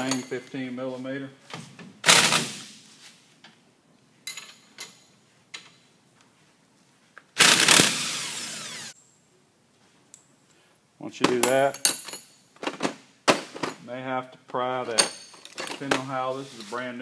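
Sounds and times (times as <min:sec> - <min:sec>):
power tool running: 0:07.4 - 0:09.0.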